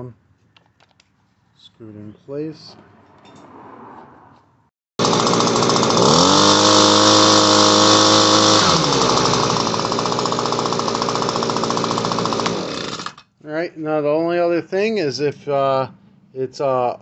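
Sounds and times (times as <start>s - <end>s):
leaf blower engine revving: 5.0s - 13.2s.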